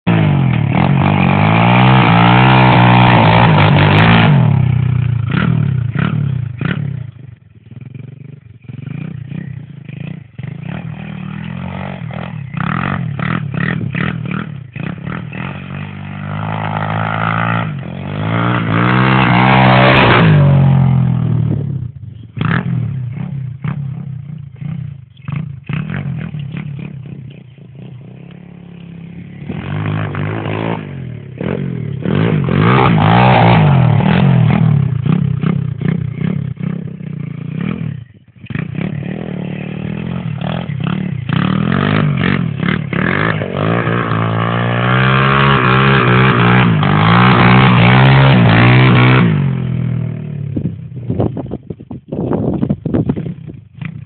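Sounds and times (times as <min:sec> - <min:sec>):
small engine revving hard: 0:00.1 - 0:06.9, 0:08.8 - 0:21.4, 0:28.9 - 0:49.9.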